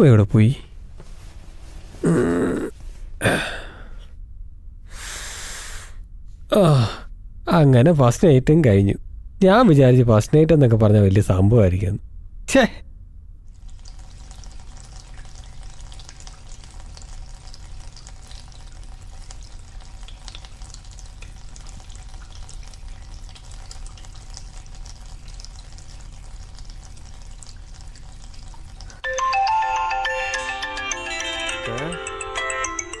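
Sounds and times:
tap water running: 0:13.5 - 0:29.0
phone ringtone melody: 0:29.0 - 0:33.0.

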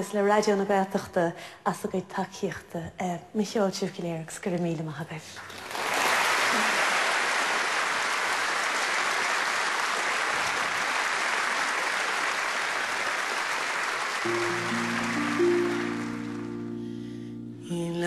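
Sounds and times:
audience applauding: 0:05.5 - 0:17.0
music playing: 0:14.3 - 0:18.0.

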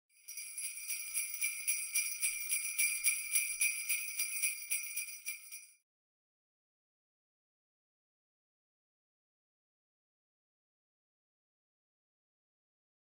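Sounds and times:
jingle bells shaken: 0:00.1 - 0:05.8.

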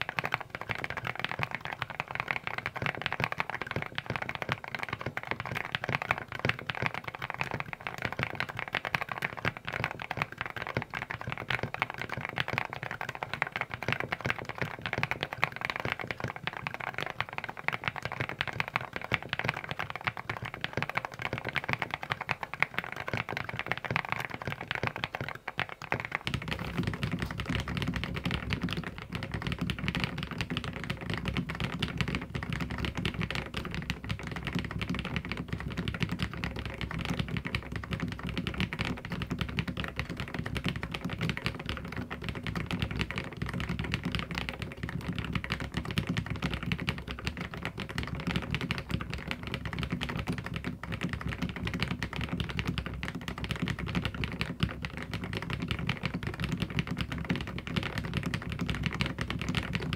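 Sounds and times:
deeper mechanical keyboard typing: 0:00.0 - 0:59.9
mechanical keyboard typing: 0:00.0 - 0:59.9.

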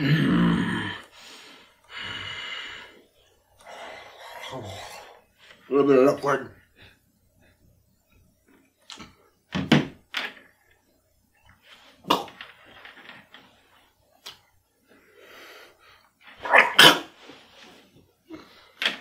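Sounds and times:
man slurping and gulping: 0:03.6 - 0:05.3.

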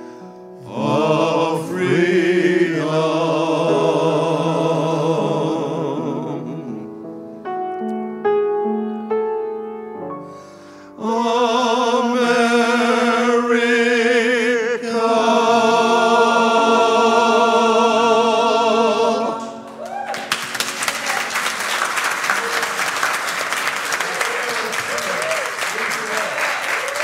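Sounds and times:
piano: 0:00.0 - 0:27.0
man singing with vibrato: 0:00.6 - 0:07.0, 0:11.0 - 0:19.4
audience applause: 0:19.6 - 0:27.0.

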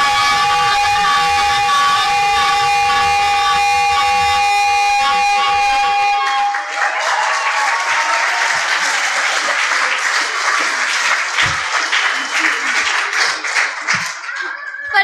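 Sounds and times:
music sustained chord: 0:00.0 - 0:06.6
audience applause: 0:00.0 - 0:15.0.

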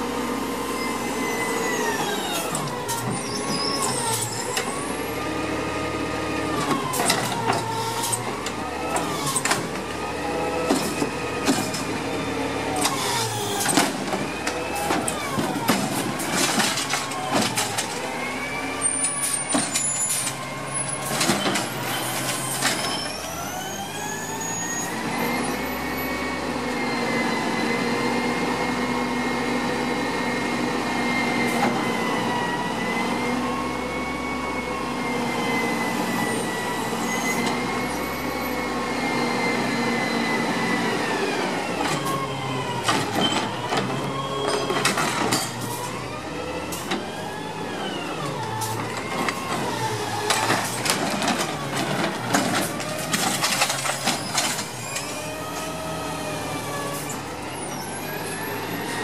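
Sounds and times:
hydraulic whine: 0:00.2 - 0:28.1.

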